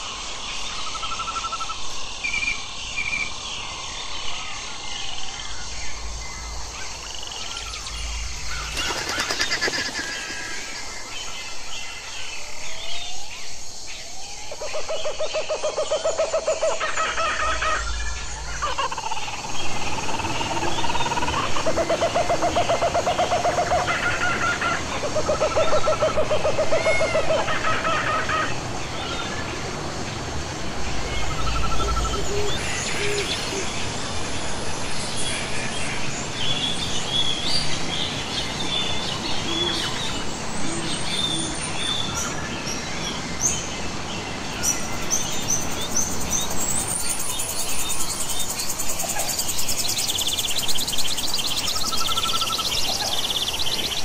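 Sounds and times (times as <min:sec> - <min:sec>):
steady hiss: 0:00.0 - 0:14.6
birds calling: 0:05.3 - 0:12.4
low pulsed bird notes: 0:05.4 - 0:09.3
high chirps and buzzy trills: 0:05.4 - 0:11.7.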